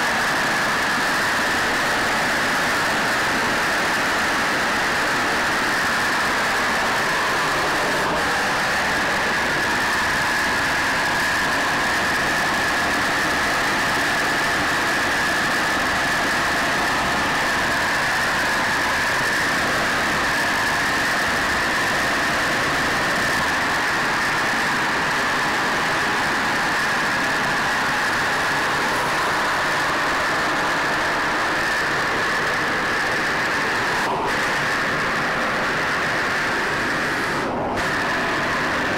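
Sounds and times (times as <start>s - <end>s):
propeller aircraft engines droning: 0.0s - 38.9s.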